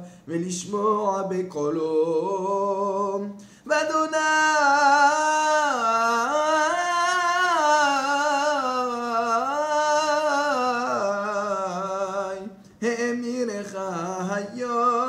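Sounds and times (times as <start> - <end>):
man breathing: 0.0 - 0.3, 3.4 - 3.7
man chanting: 0.0 - 15.0.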